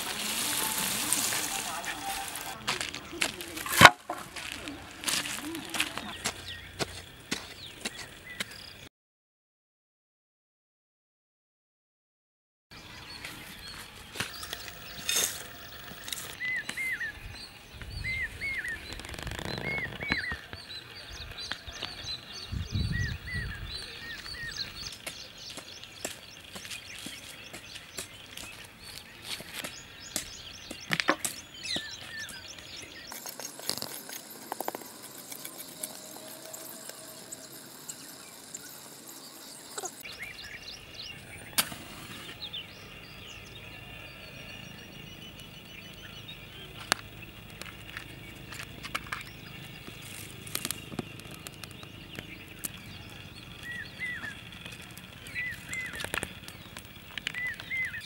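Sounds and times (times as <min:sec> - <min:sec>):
dry sticks snapping: 0:00.0 - 0:05.9, 0:46.8 - 0:53.8, 0:54.6 - 0:58.0
birds chirping: 0:00.0 - 0:08.9, 0:12.7 - 0:58.0.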